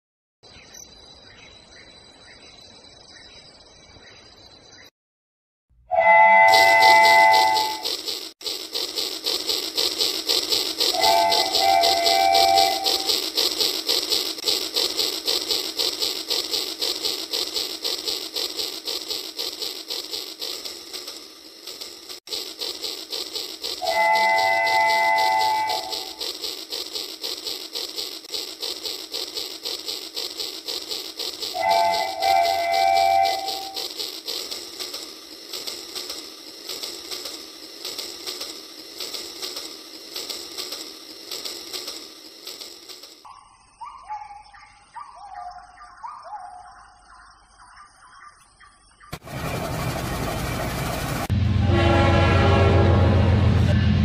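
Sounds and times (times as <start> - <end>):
toy train clicking on plastic track: 6.4 - 43.3.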